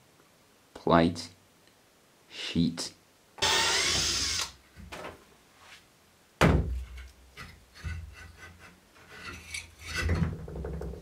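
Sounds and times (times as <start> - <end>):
light knocks and clunks: 10.0 - 11.0.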